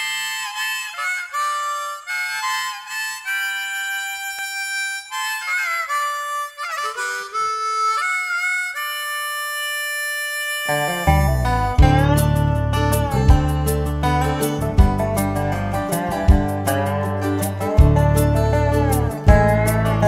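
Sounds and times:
country gospel instrumental melody: 0:10.7 - 0:20.0.

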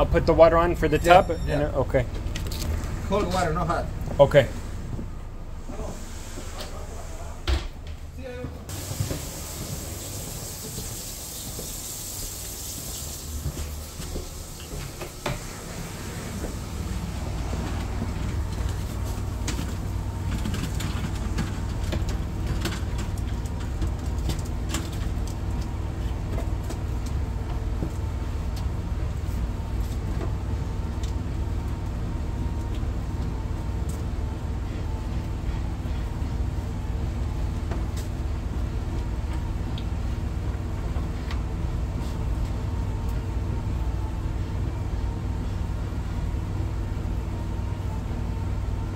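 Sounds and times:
pump engine droning: 0:00.0 - 0:48.9
running water hiss: 0:08.7 - 0:18.1.

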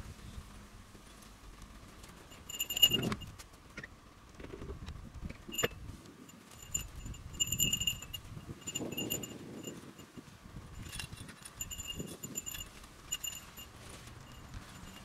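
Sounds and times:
metallic jingling: 0:02.2 - 0:03.4, 0:05.5 - 0:15.0
sharp metal clink: 0:02.4 - 0:03.2.

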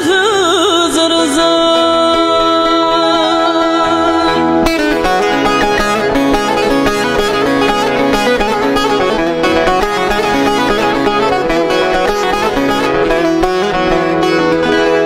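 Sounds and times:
woman singing a folk song: 0:00.0 - 0:05.0
plucked strings fast runs: 0:02.2 - 0:15.0.

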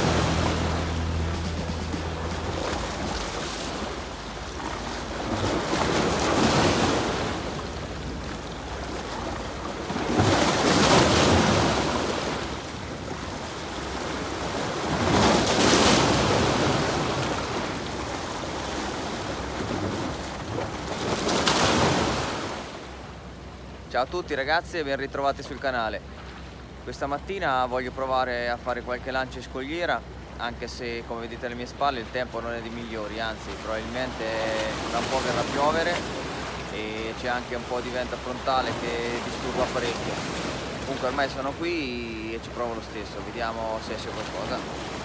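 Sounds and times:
sea waves breaking on rocks: 0:02.0 - 0:23.0, 0:33.2 - 0:45.0.

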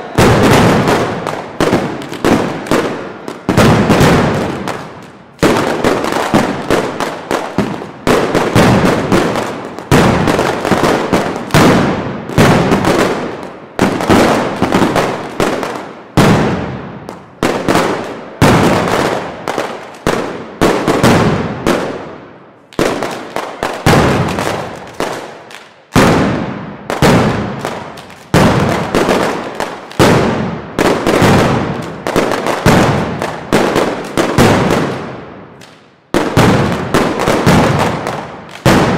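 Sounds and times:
firecrackers banging rapidly: 0:00.0 - 0:38.9.

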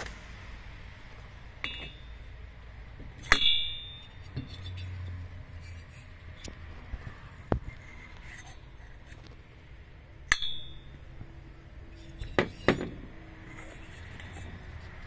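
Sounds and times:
metallic knocks and clinks: 0:01.6 - 0:02.2.

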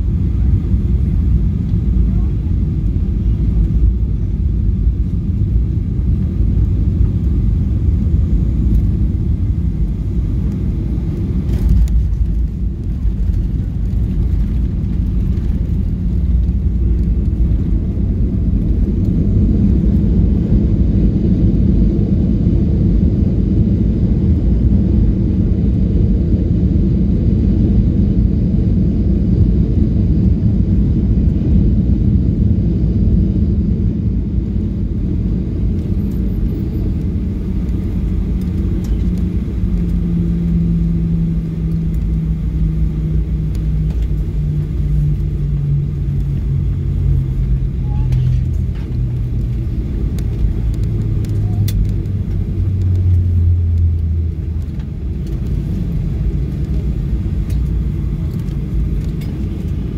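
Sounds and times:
airplane cabin engine rumble: 0:00.0 - 0:59.9.

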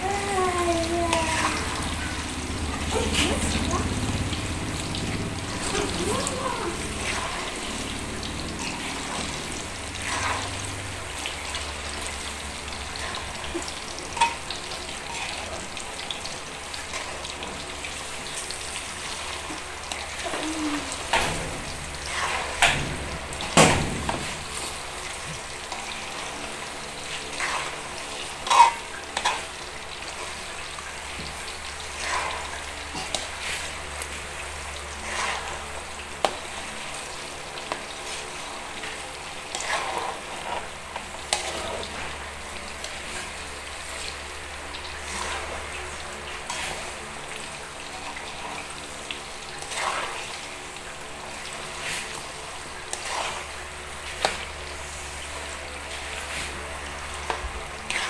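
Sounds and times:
oil sizzling in a wok: 0:00.0 - 0:58.0
metal spatula scraping a pan: 0:27.3 - 0:29.5, 0:35.0 - 0:35.6, 0:39.5 - 0:42.0.

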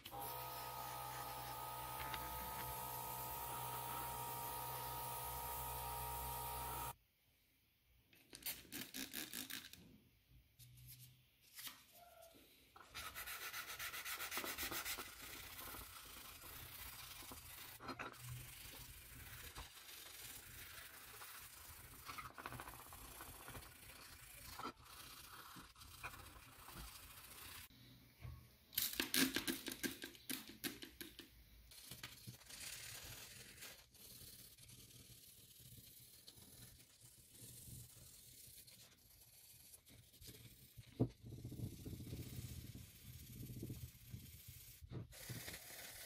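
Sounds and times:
sandpaper rasping on metal: 0:00.3 - 0:06.9, 0:12.9 - 0:27.7.

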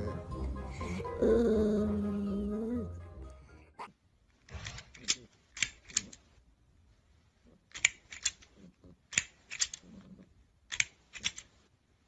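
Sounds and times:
plastic toy clacking: 0:04.4 - 0:06.3, 0:07.7 - 0:10.1, 0:10.7 - 0:11.6.

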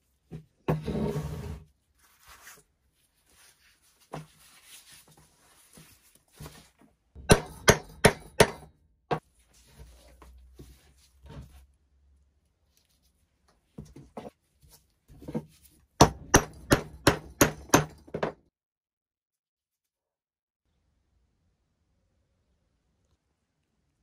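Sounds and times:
soft knocks and shuffling: 0:01.9 - 0:07.1, 0:09.2 - 0:11.8, 0:12.6 - 0:15.9
hammer striking steel punch: 0:07.2 - 0:08.7.

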